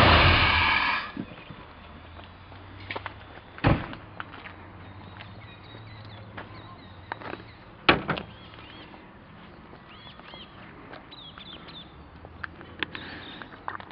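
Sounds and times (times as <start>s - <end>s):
small birds chirping: 1.1s - 13.9s.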